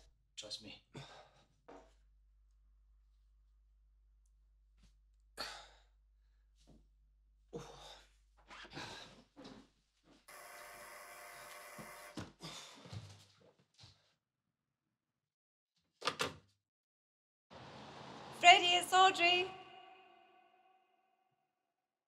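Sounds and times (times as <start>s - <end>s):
intercom buzzer: 10.3s - 12.2s.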